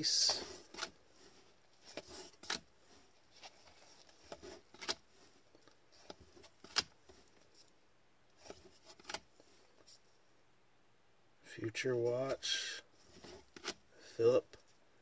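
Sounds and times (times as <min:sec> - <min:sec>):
cards sliding: 0:00.0 - 0:07.5, 0:08.4 - 0:09.9, 0:13.0 - 0:13.8.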